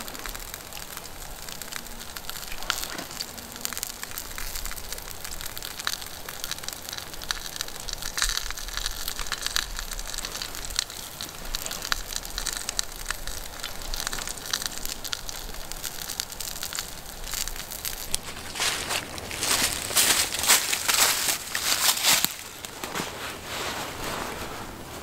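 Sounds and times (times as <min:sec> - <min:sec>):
fire pops and snaps: 0:00.0 - 0:23.4
campfire crackling: 0:00.0 - 0:25.0
fire hiss: 0:00.0 - 0:25.0.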